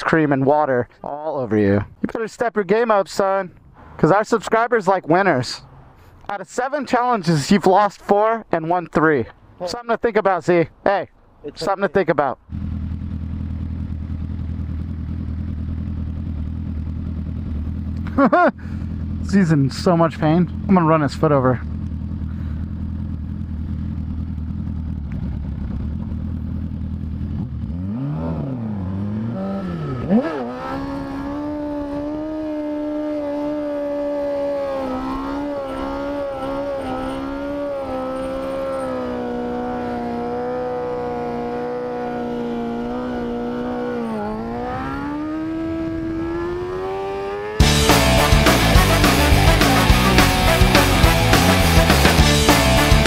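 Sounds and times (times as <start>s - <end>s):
motorcycle engine revving: 12.4s - 53.0s.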